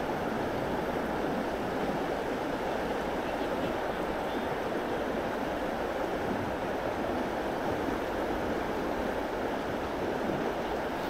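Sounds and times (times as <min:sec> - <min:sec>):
stream water rushing: 0:00.0 - 0:11.0.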